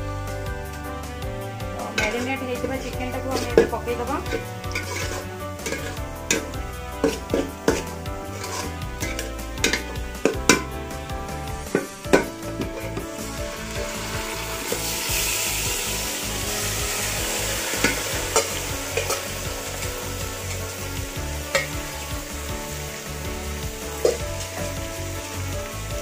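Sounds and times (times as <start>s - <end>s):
chicken sizzling in hot oil: 0.0s - 26.0s
steel spoon clinking: 4.3s - 10.4s, 14.7s - 20.8s.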